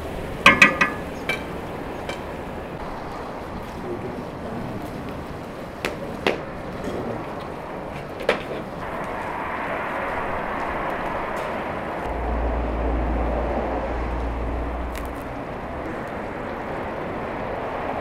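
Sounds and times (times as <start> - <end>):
fire crackles: 0.0 - 18.0
fire rushing noise: 0.0 - 18.0
deep rumble: 8.8 - 17.4.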